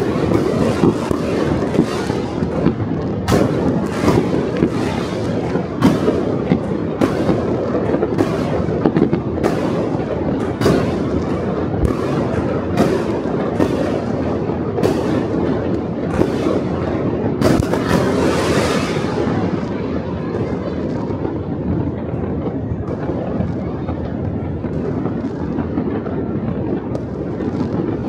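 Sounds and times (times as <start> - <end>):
distant fireworks bangs and crackling: 0.0 - 28.0
loud firework reports: 0.0 - 28.0.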